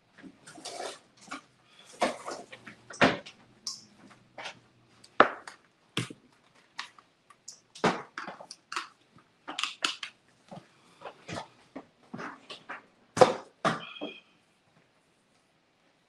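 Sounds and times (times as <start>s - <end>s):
objects clicking and knocking: 0.5s - 10.2s.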